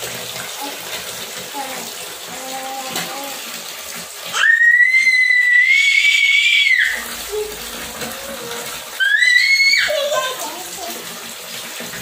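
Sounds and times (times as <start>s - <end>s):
tap water pouring into a tub: 0.0s - 12.0s
toddler squealing: 4.3s - 7.6s, 8.2s - 10.3s.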